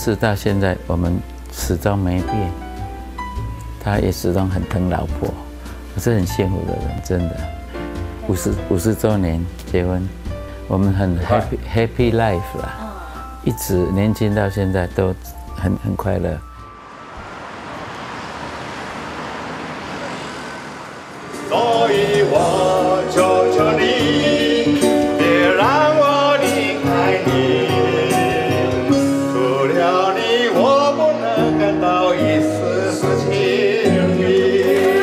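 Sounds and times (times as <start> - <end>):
karaoke backing track: 0.0 - 16.8, 21.3 - 35.0
steady noise rush: 16.2 - 23.5
man singing into a microphone: 21.5 - 35.0.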